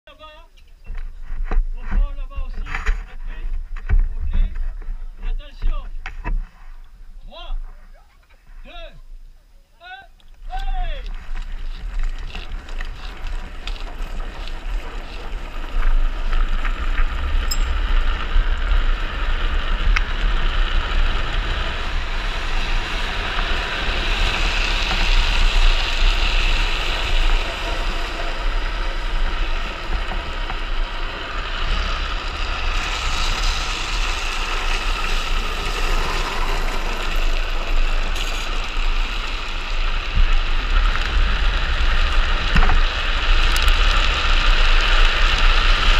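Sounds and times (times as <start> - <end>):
wheels hissing on asphalt: 10.4 - 45.9.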